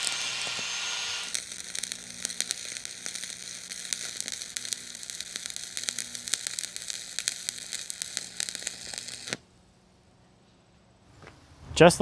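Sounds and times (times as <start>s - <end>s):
welding arc crackling and popping: 0.0s - 9.4s.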